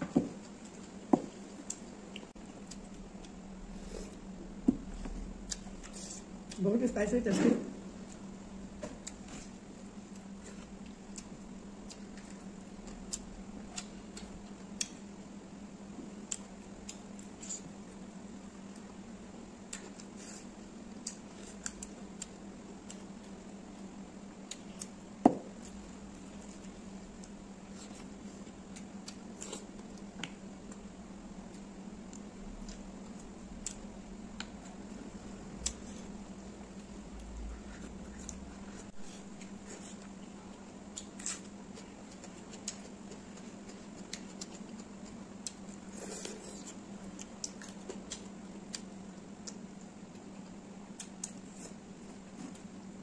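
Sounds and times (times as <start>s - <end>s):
steady low hum: 0.0s - 53.0s
mouth chewing with wet clicks: 1.6s - 3.4s, 20.9s - 23.3s, 39.4s - 51.6s.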